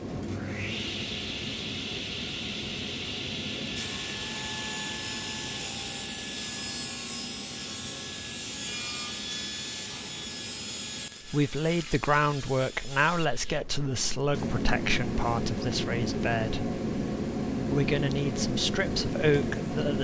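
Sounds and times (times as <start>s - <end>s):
table saw running: 0.4s - 13.3s
saw cutting wood: 3.7s - 13.6s.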